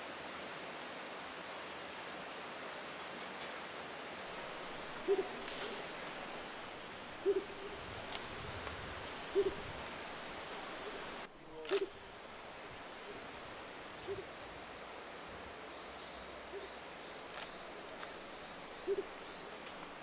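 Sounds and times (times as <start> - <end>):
faint high chirping: 3.9 - 8.6
bird giving low hoots: 4.8 - 6.4, 7.2 - 8.4, 9.3 - 9.8, 18.8 - 19.2.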